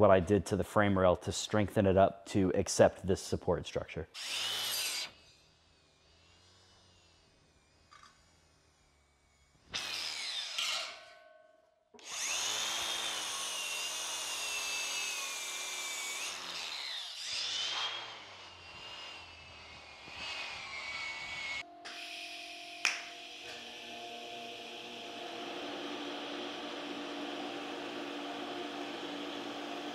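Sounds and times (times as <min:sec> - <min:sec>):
angle grinder whining on steel: 0:04.2 - 0:11.3, 0:12.0 - 0:29.9.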